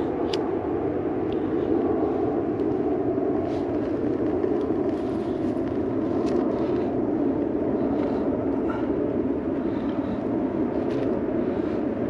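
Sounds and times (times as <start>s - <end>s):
stove fire rushing: 0.0s - 12.0s
faint crackles: 3.4s - 8.9s.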